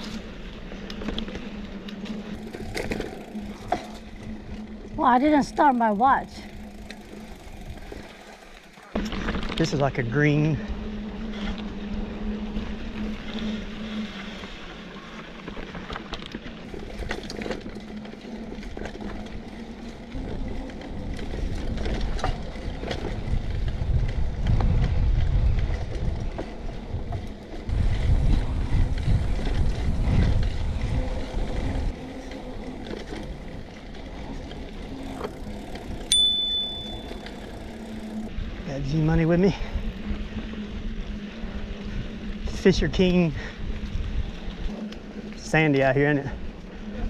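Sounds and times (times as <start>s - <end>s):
bike tyre and drivetrain rattle: 0.0s - 47.0s
wind rumble on microphone: 15.5s - 36.9s, 37.5s - 47.0s
bicycle bell ding: 36.1s - 37.9s.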